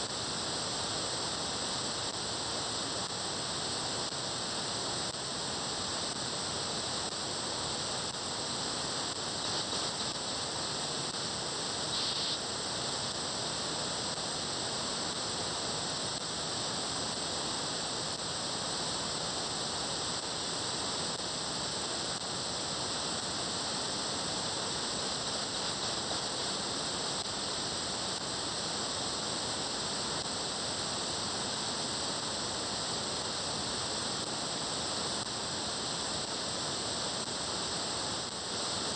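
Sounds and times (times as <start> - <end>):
radio static hiss: 0.0 - 38.9.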